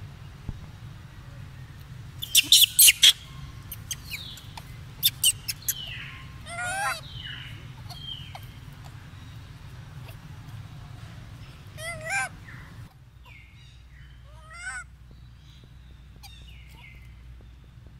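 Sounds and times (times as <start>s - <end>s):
monkeys squeaking and chirping: 2.2s - 10.5s, 11.4s - 13.5s, 16.2s - 17.0s.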